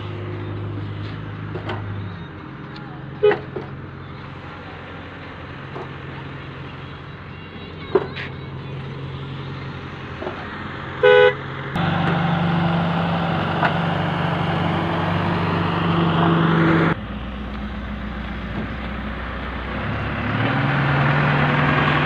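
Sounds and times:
excavator diesel engine droning: 0.0 - 22.0
horn toot: 11.0 - 11.4.

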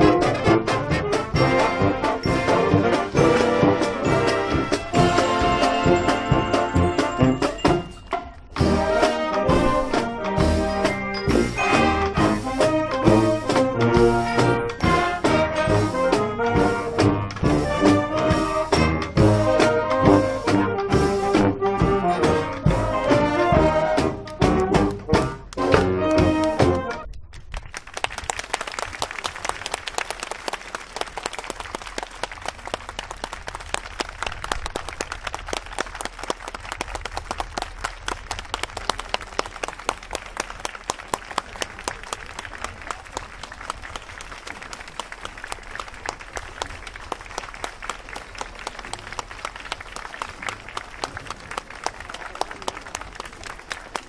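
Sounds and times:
brass marching band playing: 0.0 - 27.1
audience applauding: 27.4 - 54.0.

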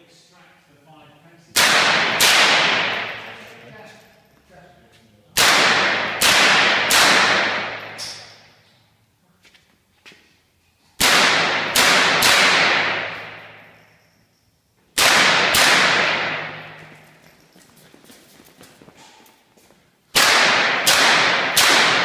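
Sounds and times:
rifle shots echoing: 1.5 - 3.5, 5.4 - 8.4, 11.0 - 13.8, 15.0 - 17.0, 20.1 - 22.0.

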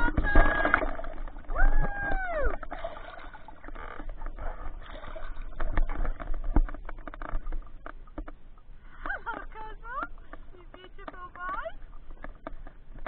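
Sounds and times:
muffled water splashing: 0.0 - 13.0
knocks and clicks: 9.2 - 13.0.

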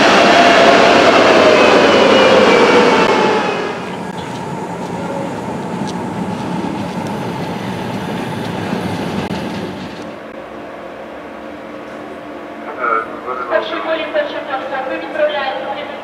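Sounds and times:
train wheels rumbling on rails: 0.0 - 10.6.

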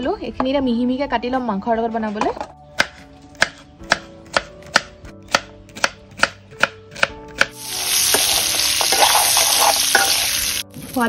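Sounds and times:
knife chopping on cutting board: 2.8 - 8.3
food sizzling in hot oil: 7.5 - 11.0.

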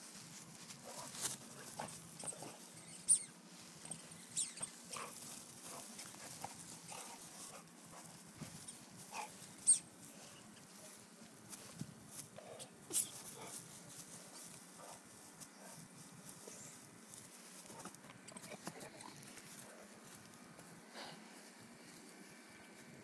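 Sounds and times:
puppy noises: 0.6 - 10.8, 17.6 - 20.0.

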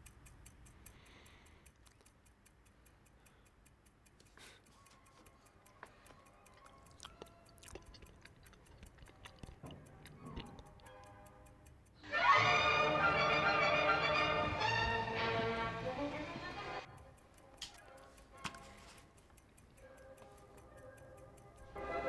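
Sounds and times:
sharp clicks: 0.0 - 12.0, 16.8 - 21.8
wall clock ticking: 0.0 - 22.0
quiet music: 9.6 - 22.0
loud music: 12.1 - 16.8.

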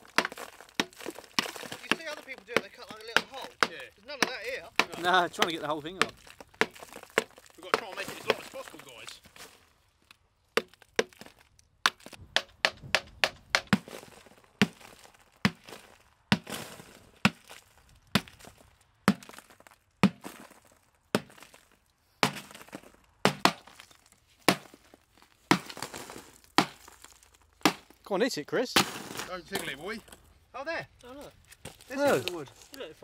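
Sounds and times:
hammer blows on concrete: 0.0 - 9.0, 11.9 - 16.5, 22.2 - 23.8.

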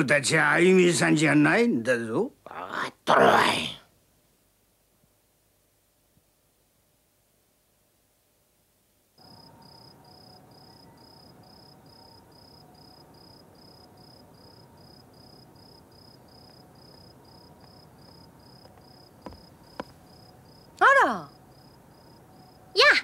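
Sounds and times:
faint hiss: 0.0 - 23.0
crickets chirping: 9.2 - 23.0.

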